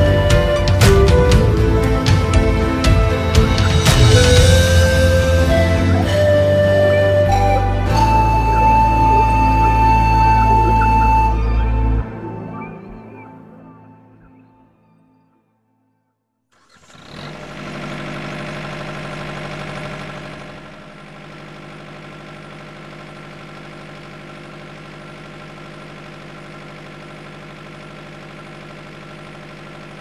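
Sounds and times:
small sprayer engine running: 0:00.0 - 0:11.5, 0:16.6 - 0:30.0.

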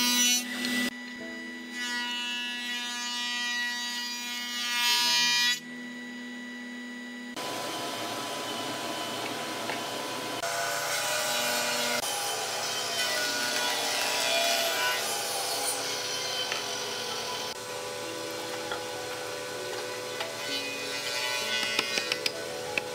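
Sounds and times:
machine hum: 0:05.2 - 0:22.9
power saw cutting wood: 0:07.4 - 0:22.9.

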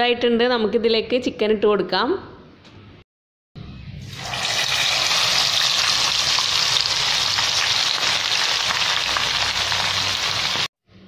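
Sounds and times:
chicken frying in hot oil: 0:04.0 - 0:10.7.

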